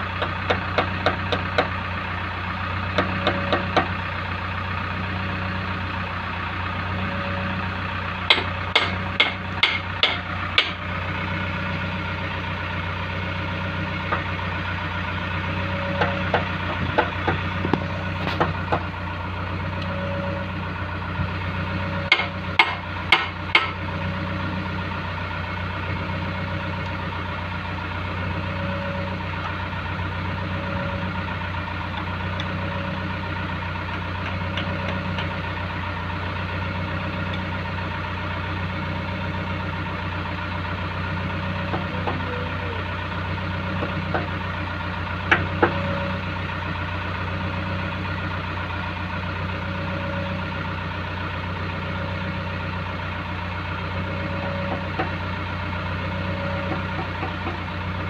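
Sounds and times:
diesel engine idling: 0.0 - 58.0
sharp metal knocks: 8.3 - 10.8, 22.1 - 23.8.

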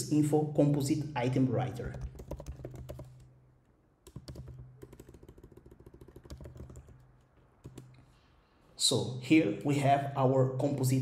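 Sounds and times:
typing on a keyboard: 1.8 - 3.3, 4.1 - 7.9.

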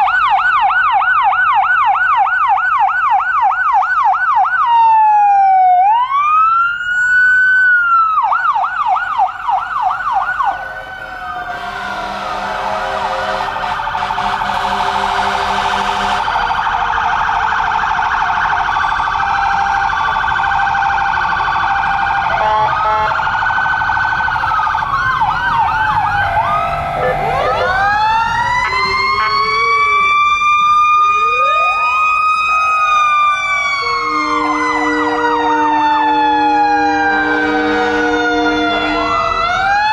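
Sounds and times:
electronic sirens wailing and yelping: 0.0 - 39.9
steady horn tone: 10.5 - 16.4, 22.3 - 23.2, 33.8 - 35.2, 37.0 - 39.2.

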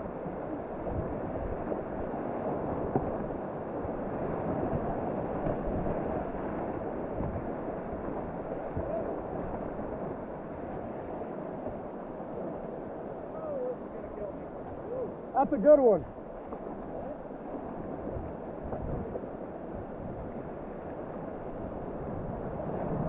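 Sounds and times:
wind rumble on microphone: 0.0 - 15.2, 15.9 - 23.0
river whitewater rushing: 12.3 - 16.0.

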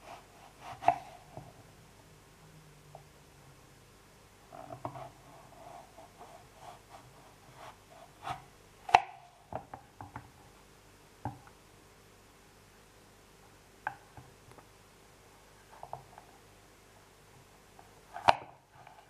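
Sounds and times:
knife cutting apple on cutting board: 0.0 - 1.6, 4.6 - 10.2, 18.1 - 19.0.

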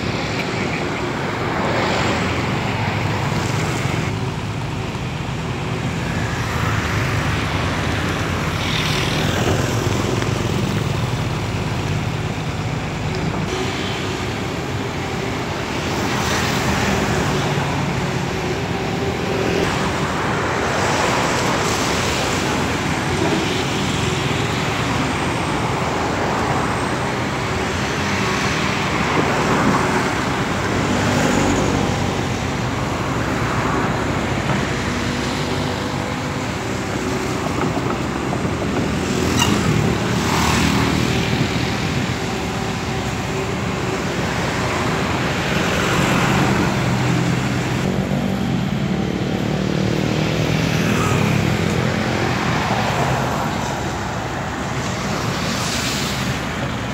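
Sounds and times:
excavator diesel engine running: 0.0 - 56.9
road traffic passing: 0.0 - 56.9.

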